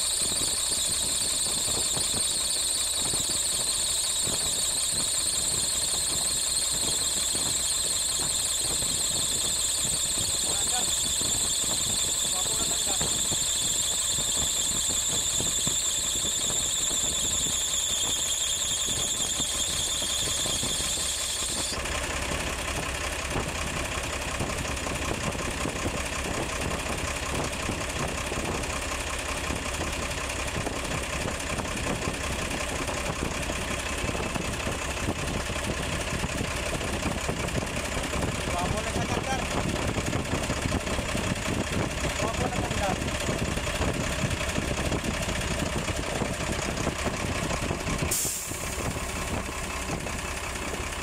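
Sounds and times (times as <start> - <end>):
high-pitched squeal: 0.0 - 21.9
diesel truck engine idling: 0.0 - 51.0.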